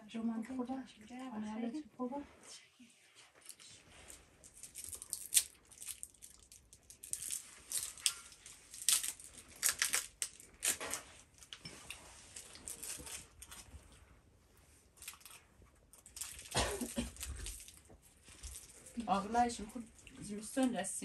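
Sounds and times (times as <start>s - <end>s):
sweet wrappers crinkling: 3.4s - 14.0s, 15.0s - 20.7s.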